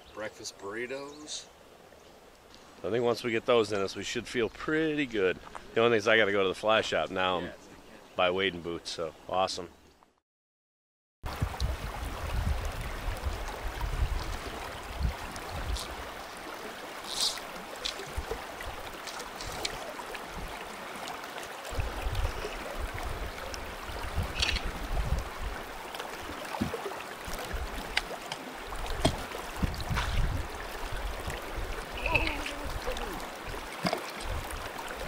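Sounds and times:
creek water flowing and lapping: 0:00.0 - 0:09.4, 0:11.2 - 0:35.0
low water rumbling: 0:11.3 - 0:35.0.

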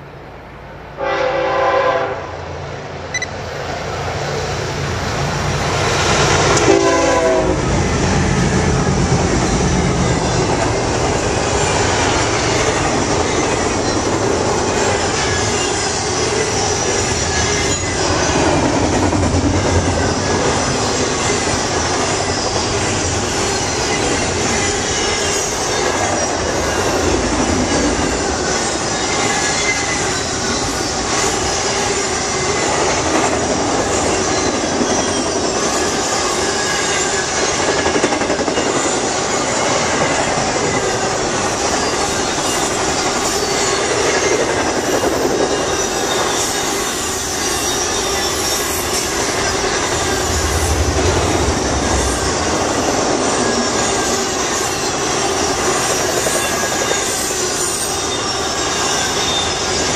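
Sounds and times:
train air horn: 0:01.0 - 0:02.4, 0:06.5 - 0:07.7
freight cars rumbling on rails: 0:03.1 - 0:59.9.

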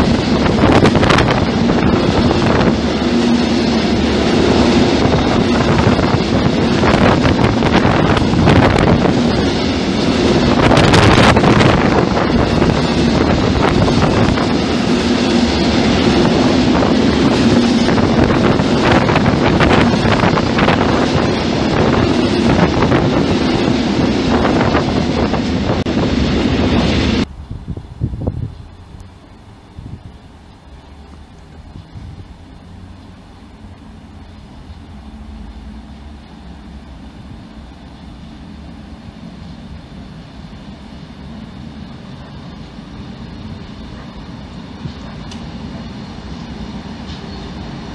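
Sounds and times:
freight wagons rumbling on rails: 0:00.0 - 0:47.9
wheels clicking over rail joints: 0:42.1 - 0:47.9.

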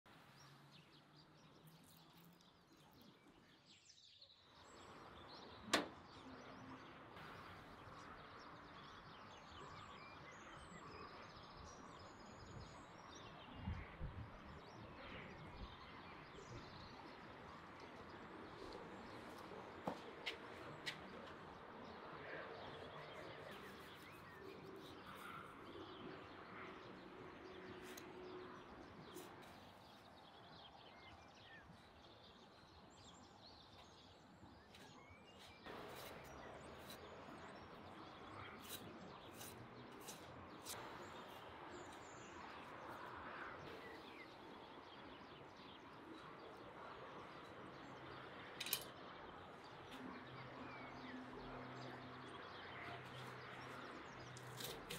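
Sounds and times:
birds chirping: 0:14.5 - 0:54.9.

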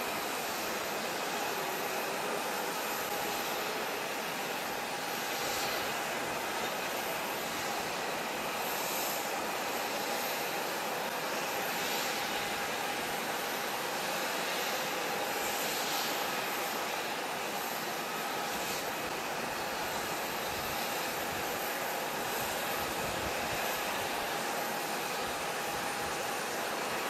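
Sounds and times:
jet engines idling: 0:00.0 - 0:27.0.

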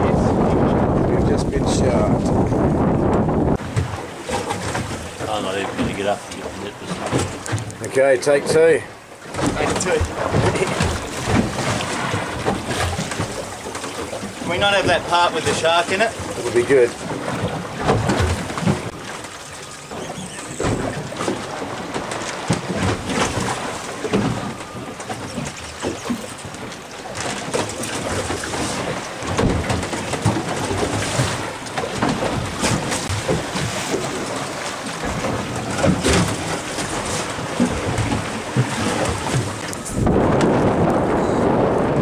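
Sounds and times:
wind on microphone: 0:00.0 - 0:06.2, 0:27.8 - 0:42.0
waves slapping against hull: 0:00.0 - 0:42.0.

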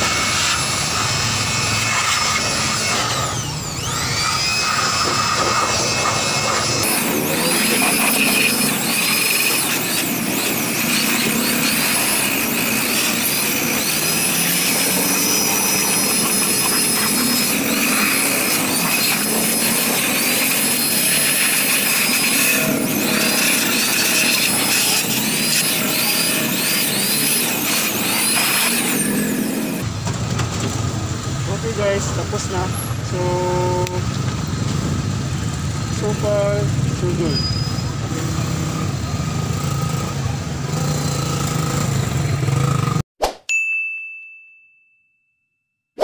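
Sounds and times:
electric blower motor whine: 0:00.0 - 0:29.9.

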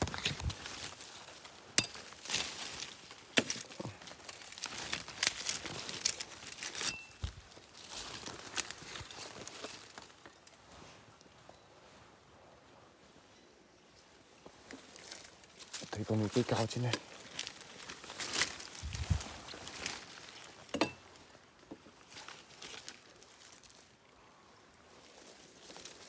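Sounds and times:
twigs cracking and snapping: 0:00.0 - 0:10.6, 0:14.7 - 0:21.2, 0:22.0 - 0:23.9, 0:25.1 - 0:26.0
footsteps crunching through leaves: 0:00.0 - 0:11.2, 0:14.5 - 0:21.2, 0:22.0 - 0:23.9, 0:24.9 - 0:26.0.

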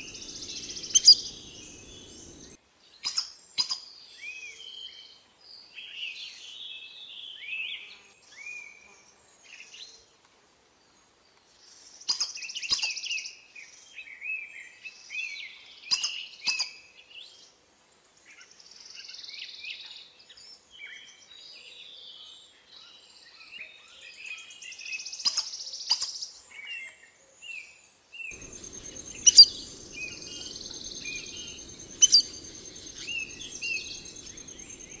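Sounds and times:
birds chirping and calling: 0:00.0 - 0:02.6, 0:28.4 - 0:35.0
low hum: 0:28.4 - 0:35.0.

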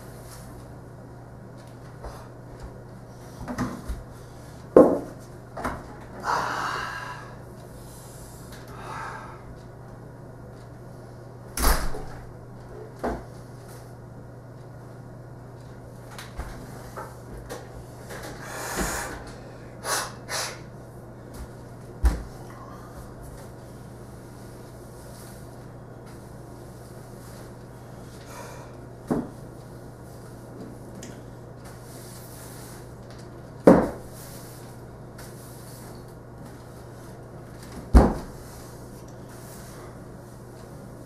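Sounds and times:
steady low hum: 0:00.0 - 0:41.0.

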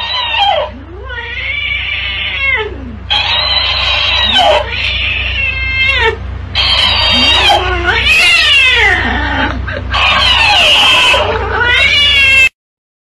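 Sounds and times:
cat yowling: 0:00.0 - 0:12.6
toy playing back squeaky voice: 0:03.1 - 0:05.2, 0:06.6 - 0:07.7.

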